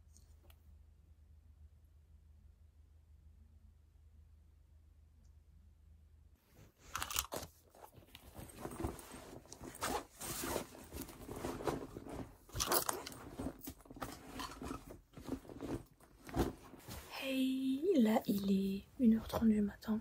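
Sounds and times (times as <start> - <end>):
fabric bag rustling: 6.8 - 17.4.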